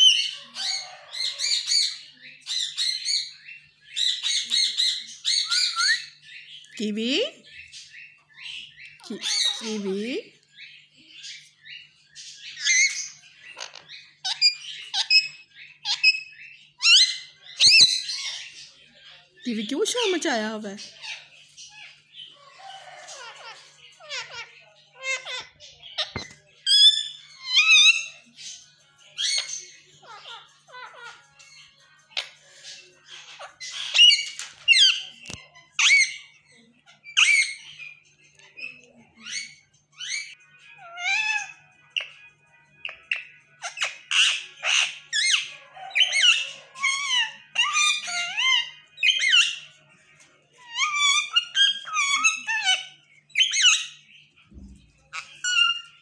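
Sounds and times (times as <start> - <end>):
parakeet shrill squawks: 0.0 - 18.7, 20.6 - 42.2, 42.8 - 49.8, 50.6 - 54.1, 55.1 - 56.0
parakeet chattering: 8.9 - 10.3, 22.6 - 28.2, 29.2 - 36.3, 37.1 - 49.7.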